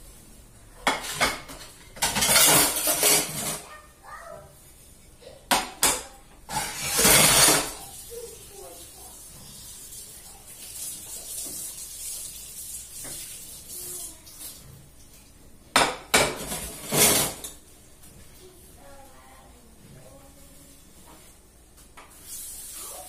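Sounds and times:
plates clattering: 0.8s - 3.7s, 5.5s - 8.0s, 15.7s - 17.6s
tap water running: 5.5s - 18.4s, 21.0s - 23.0s.

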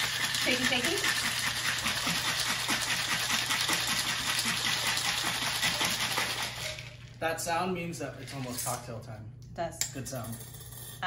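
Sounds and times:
ice rattling in shaken jar: 0.0s - 7.2s.

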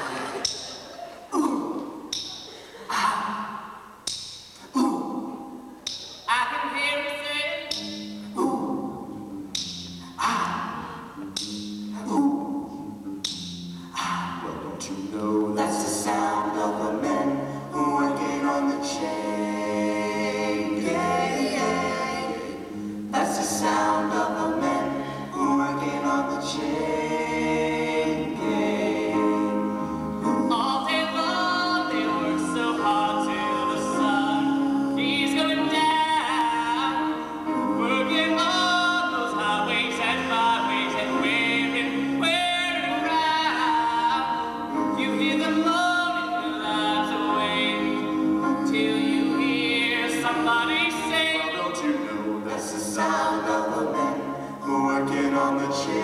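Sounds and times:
male vocal group singing in harmony: 10.2s - 13.0s, 13.9s - 56.0s.

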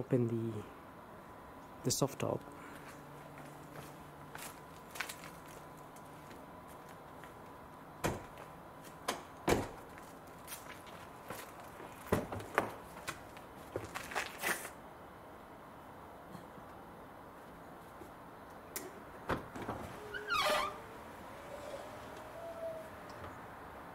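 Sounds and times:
footsteps: 2.7s - 7.5s, 9.8s - 14.7s.

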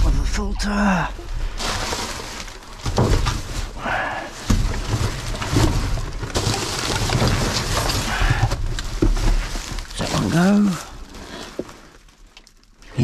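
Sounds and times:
knocks and clatters: 0.0s - 3.8s, 4.4s - 10.3s
rubbish rustling: 0.0s - 13.0s.

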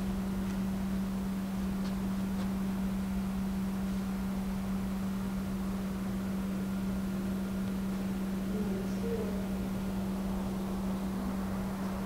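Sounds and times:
constant even hiss: 0.0s - 12.0s
steady low hum: 0.0s - 12.0s.

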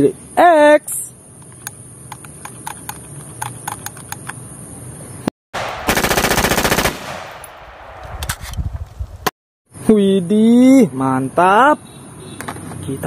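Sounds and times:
gunfire burst with echo: 5.6s - 8.1s.

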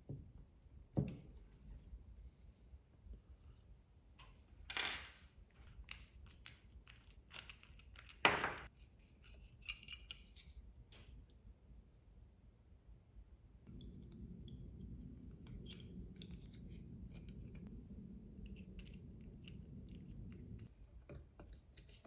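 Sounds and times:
small clicks and rustles of parts: 3.5s - 12.2s.

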